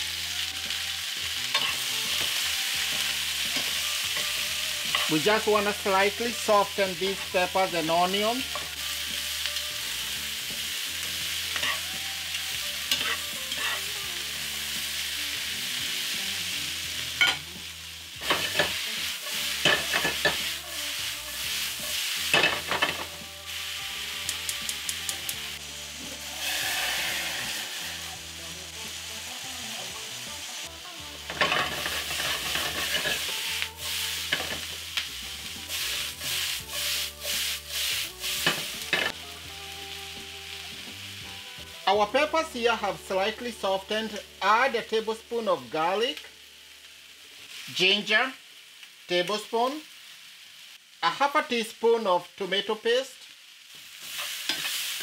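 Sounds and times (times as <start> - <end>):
vegetables sizzling in oil: 0.0 - 55.0
metal tongs clacking on pan: 1.5 - 1.8, 17.2 - 17.4, 19.6 - 20.4, 24.2 - 25.4, 54.5 - 54.8.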